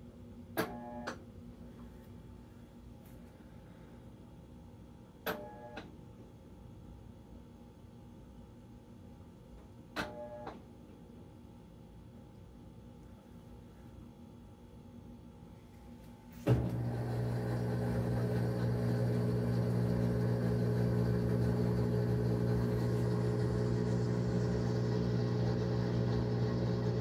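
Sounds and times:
washing machine humming: 16.3 - 27.0
washing machine clunk: 16.4 - 17.0.

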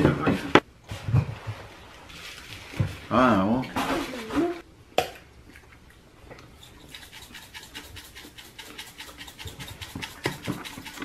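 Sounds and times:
seasoning grinder rasping clicks: 6.8 - 11.0.

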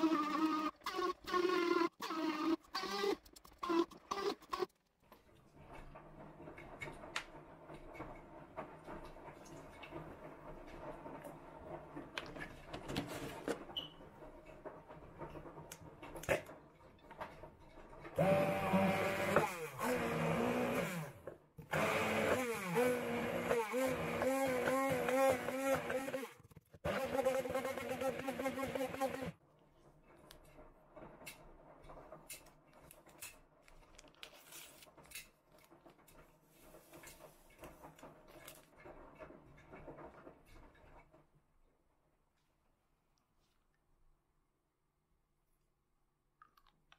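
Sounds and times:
immersion blender whining: 0.0 - 4.7, 18.2 - 29.4.

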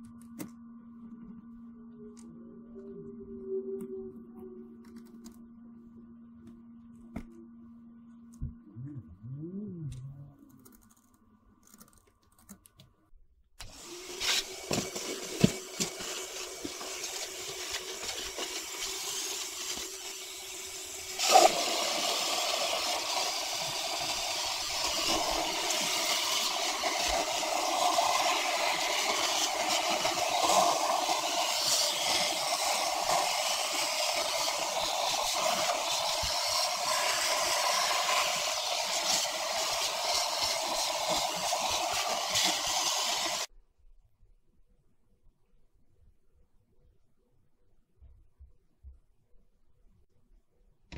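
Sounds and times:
quiet steady hum: 0.0 - 13.6
vacuum cleaner running: 13.6 - 43.5.

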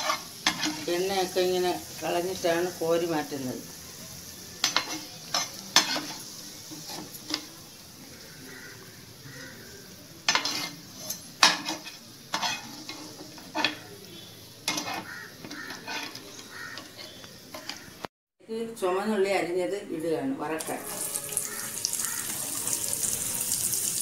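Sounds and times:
metal spoon scraping and clinking on pan: 0.0 - 1.1, 4.6 - 7.6, 10.3 - 14.0, 14.6 - 17.9
ginger sizzling in hot oil: 0.0 - 18.0, 20.6 - 24.0.

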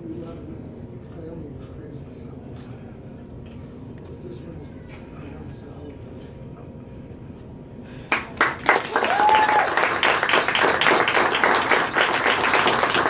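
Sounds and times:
guests clapping: 8.1 - 13.0.

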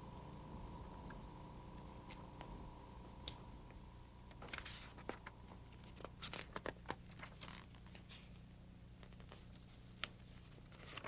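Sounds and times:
low steady hum: 0.0 - 11.0
pages being turned: 4.3 - 11.0.

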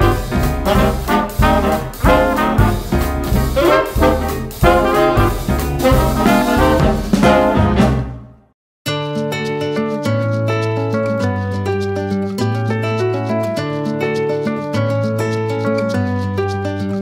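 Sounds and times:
jazzy swing music with brass: 0.0 - 8.5.

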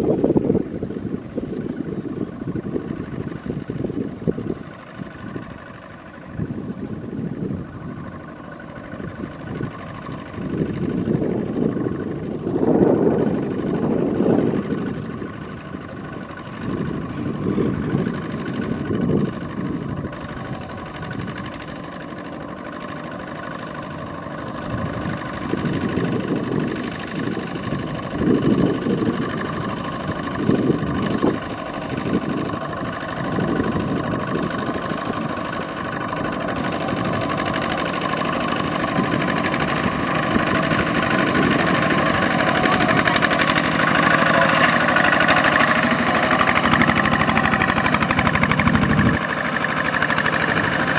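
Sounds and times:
diesel tractor engine running: 0.0 - 50.9.

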